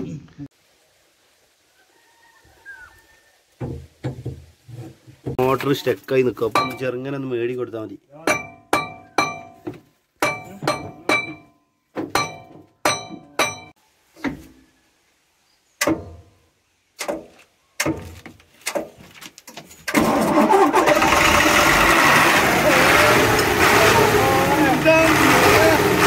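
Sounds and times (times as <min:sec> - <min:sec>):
diesel engine running: 0:20.0 - 0:26.0.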